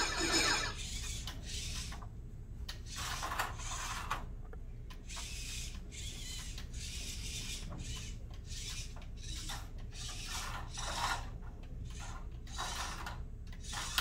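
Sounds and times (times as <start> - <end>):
robot motors and wheels running: 0.0 - 2.0, 5.0 - 14.0
steady low hum: 0.0 - 14.0.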